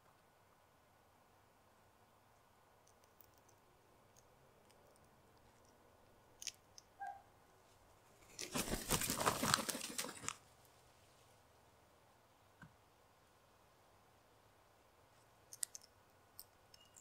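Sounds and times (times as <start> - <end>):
bird wings flapping and scrabbling: 8.3 - 10.4.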